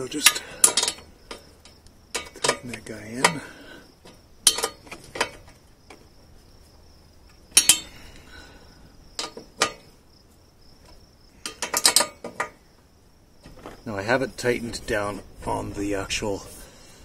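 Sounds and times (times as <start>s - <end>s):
wrench clinking on metal nut: 0.2s - 1.4s, 4.4s - 5.4s, 7.5s - 7.9s, 11.4s - 12.5s.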